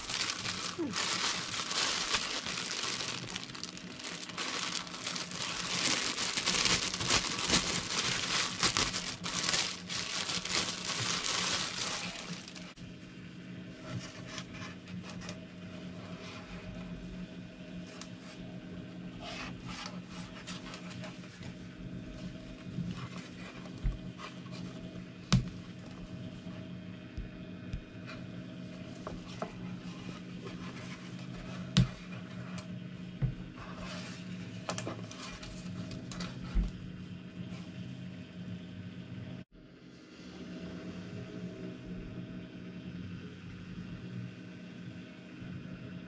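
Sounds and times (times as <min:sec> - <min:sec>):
fabric rubbing and rustling: 0:00.0 - 0:12.8
low hum: 0:00.0 - 0:46.0.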